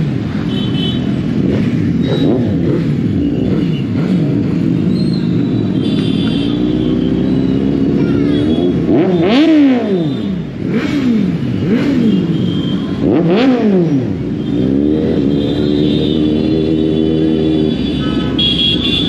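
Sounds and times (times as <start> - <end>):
motorcycle engine revving: 0.0 - 19.0.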